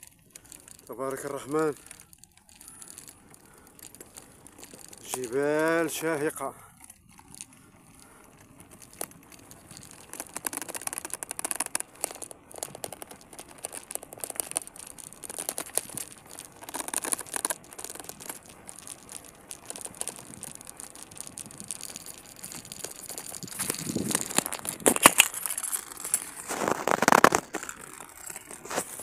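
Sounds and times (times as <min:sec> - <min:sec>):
camera mount rattling on handlebars: 0:06.7 - 0:29.0.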